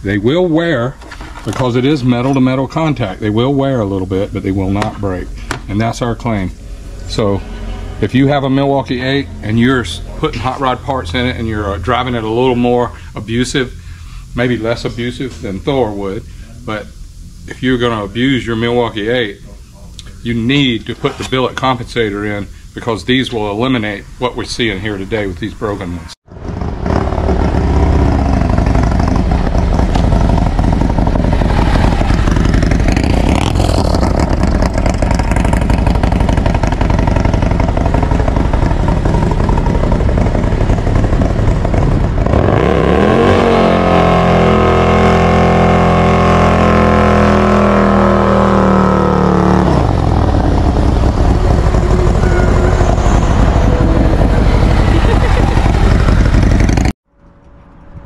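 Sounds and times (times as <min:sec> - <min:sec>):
motorcycle engine revving hard: 0:26.3 - 0:57.0
tyre spinning in a burnout: 0:26.4 - 0:56.9.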